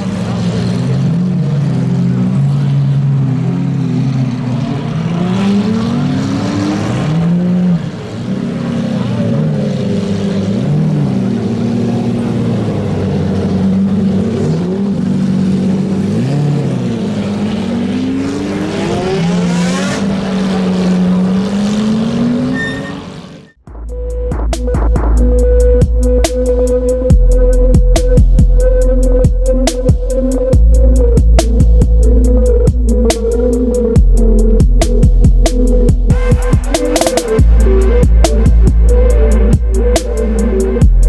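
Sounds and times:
supercar engines revving: 0.0 - 41.0.

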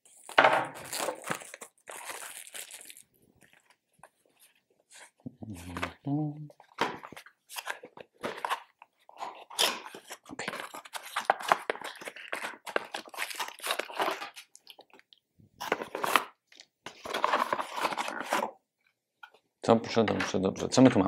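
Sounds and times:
packaging crinkling and tearing: 0.0 - 3.8, 6.7 - 18.6.

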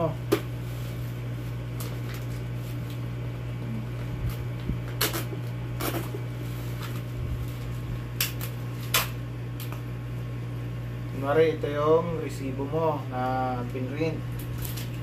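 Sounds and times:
steady low hum: 0.0 - 15.0
plastic package crinkling: 14.4 - 15.0.

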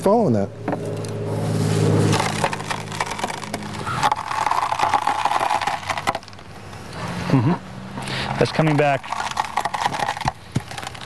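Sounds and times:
wood splitting and crackling: 2.0 - 7.0, 7.9 - 11.0.

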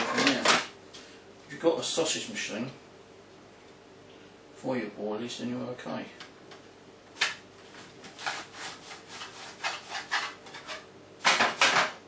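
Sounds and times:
dough rubbing against board: 7.8 - 10.9.

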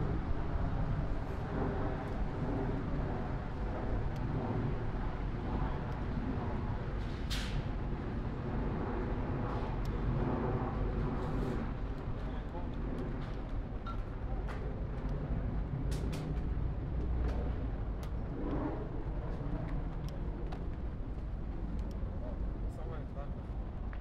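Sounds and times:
traffic rumble: 0.0 - 24.0
faint voices of passers-by: 10.8 - 15.8, 16.9 - 23.9.

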